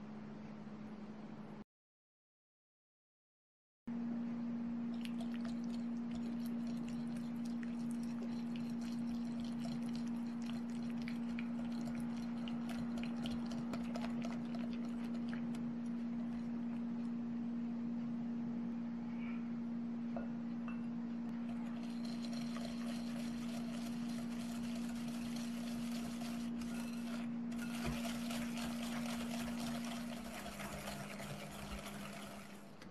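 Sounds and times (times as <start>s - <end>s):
steady low hum: 3.9s - 32.9s
gritty whisk scraping: 5.8s - 16.6s, 21.5s - 32.8s.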